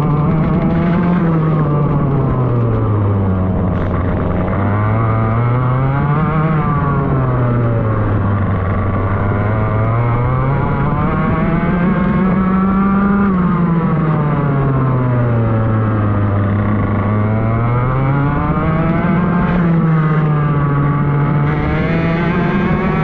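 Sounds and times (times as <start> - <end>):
kart engine revving: 0.0 - 23.0.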